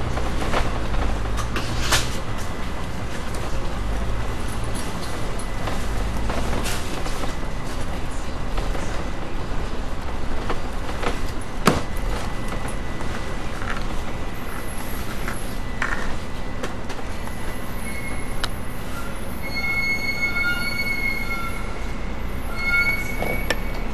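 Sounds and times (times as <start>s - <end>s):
bus engine running: 0.0s - 19.4s
brakes squealing: 12.0s - 23.9s.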